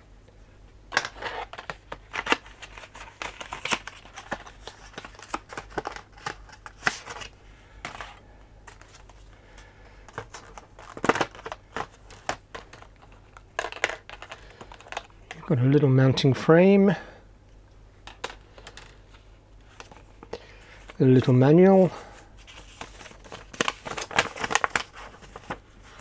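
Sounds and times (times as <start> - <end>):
packaging clicks taps and crinkles: 0.9 - 8.1, 8.7 - 15.4, 22.6 - 25.6.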